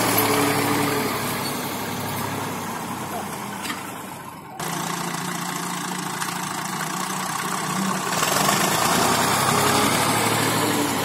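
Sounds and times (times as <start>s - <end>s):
tractor diesel engine under load: 0.0s - 11.0s.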